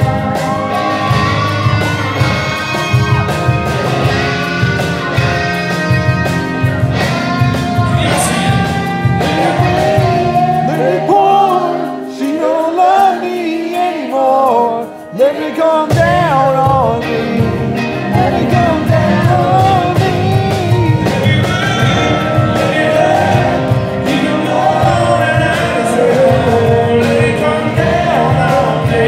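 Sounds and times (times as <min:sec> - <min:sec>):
acoustic country band: 0:00.0 - 0:29.0
male lead vocal: 0:07.5 - 0:29.0.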